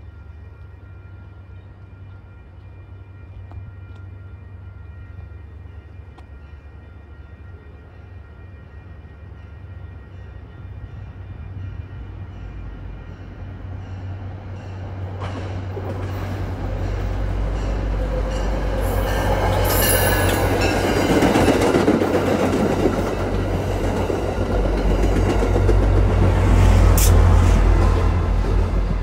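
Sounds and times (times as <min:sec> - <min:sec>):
train wheels rumbling on rail: 0:09.0 - 0:29.0.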